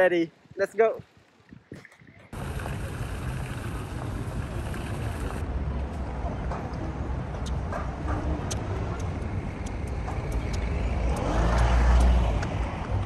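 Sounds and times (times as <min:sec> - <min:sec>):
city street rumble: 0:02.3 - 0:13.0
vehicle passing: 0:07.8 - 0:13.0.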